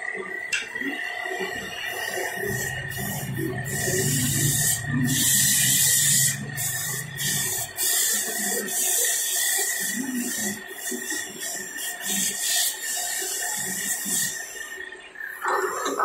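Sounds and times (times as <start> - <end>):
lathe high whine: 0.0 - 16.0
sandpaper hissing on spinning wood: 1.9 - 14.7.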